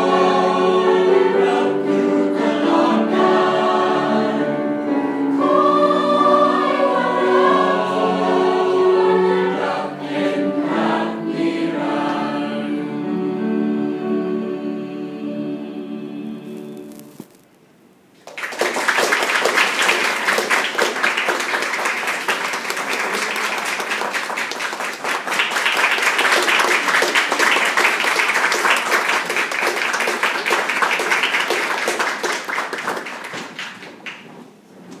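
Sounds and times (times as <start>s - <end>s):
audience applauding: 18.2s - 34.3s.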